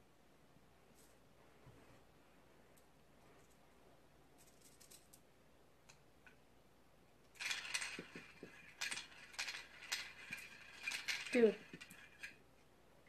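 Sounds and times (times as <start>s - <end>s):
toy pieces clattering: 7.3s - 12.4s.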